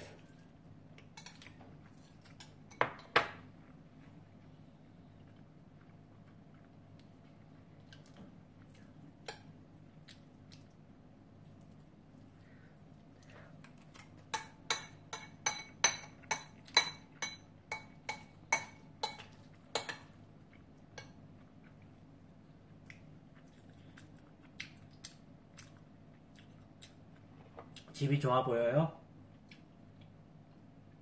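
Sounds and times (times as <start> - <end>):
metal spoon clinking against bowl: 14.3 - 20.1.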